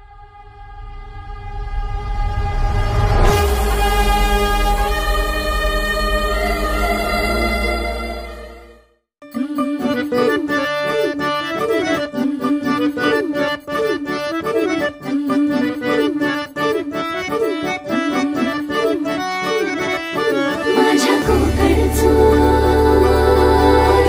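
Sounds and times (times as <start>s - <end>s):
harmonium folk melody: 9.2s - 24.0s.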